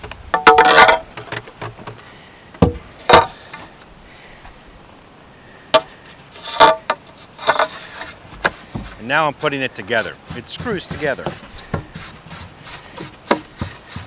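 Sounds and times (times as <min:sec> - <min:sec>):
pole knocking against boat: 0:13.0 - 0:14.0.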